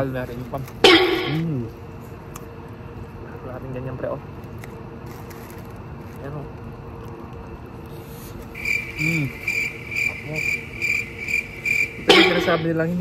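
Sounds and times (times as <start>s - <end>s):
cricket chirping: 0.8s - 1.4s, 8.5s - 13.0s.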